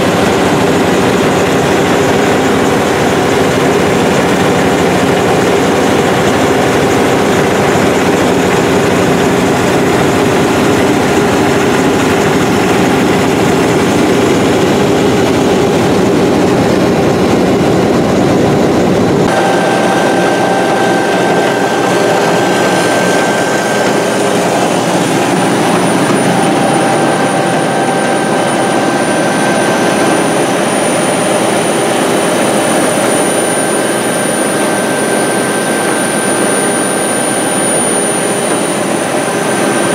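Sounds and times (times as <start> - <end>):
diesel pump engine running: 0.0 - 39.9
thin high whine: 0.0 - 39.9.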